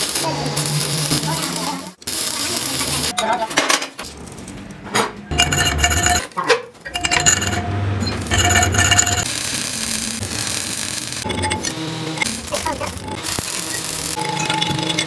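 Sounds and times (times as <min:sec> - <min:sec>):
ringing metallic tones: 0:05.3 - 0:06.3, 0:06.9 - 0:09.2
metal scraping and clinking: 0:05.3 - 0:09.3.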